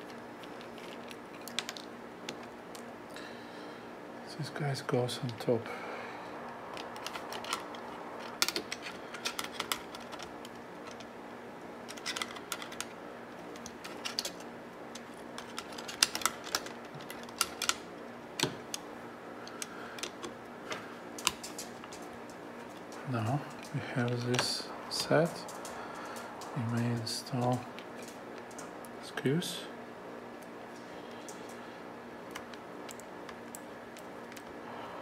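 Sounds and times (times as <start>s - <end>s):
faint steady hum: 0.0s - 35.0s
plastic and metal parts clicking: 11.9s - 12.9s, 13.5s - 17.8s.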